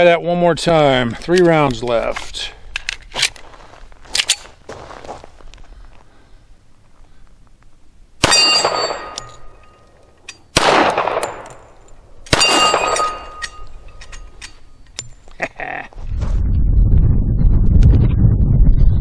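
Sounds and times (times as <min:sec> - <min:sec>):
pistol shots: 0:08.2 - 0:09.5, 0:10.5 - 0:13.6
steel target plate ringing: 0:08.2 - 0:10.6, 0:11.2 - 0:15.2
steady low rumble: 0:10.6 - 0:19.0.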